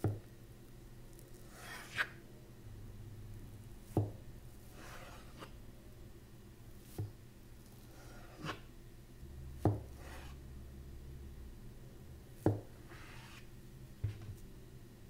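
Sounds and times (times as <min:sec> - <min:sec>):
knife scraping dough: 0:01.2 - 0:02.2, 0:04.6 - 0:05.6, 0:07.7 - 0:08.7, 0:09.8 - 0:10.4, 0:12.8 - 0:13.5.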